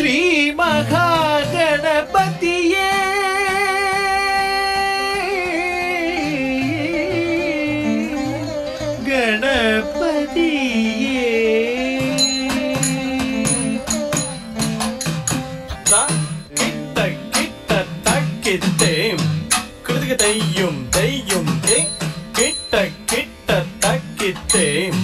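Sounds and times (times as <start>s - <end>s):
person singing ornamented melody: 9.2s - 14.5s, 15.8s - 25.0s
sharp ringing percussion strokes: 12.2s - 25.0s.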